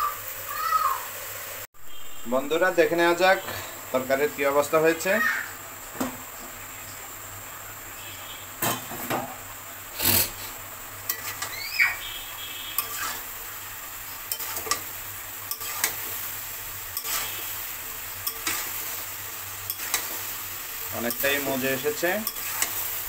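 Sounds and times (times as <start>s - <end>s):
curry sizzling: 0.0s - 23.0s
spatula scraping metal pan: 9.9s - 11.6s, 12.7s - 13.4s, 14.2s - 16.3s, 16.9s - 17.6s, 18.2s - 22.9s.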